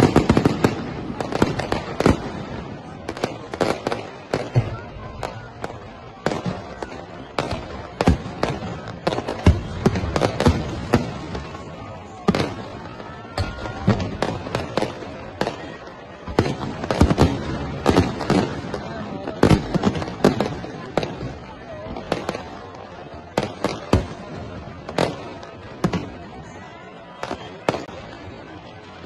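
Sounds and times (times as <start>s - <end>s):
fireworks bangs and crackles: 0.0s - 29.0s.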